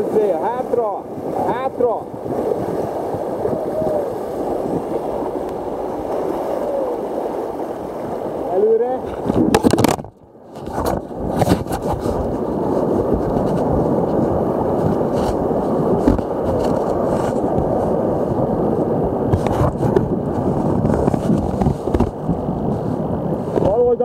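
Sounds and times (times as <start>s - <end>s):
rushing whitewater: 0.0s - 24.0s
camera rumbling and scraping: 9.0s - 18.4s, 19.3s - 23.9s.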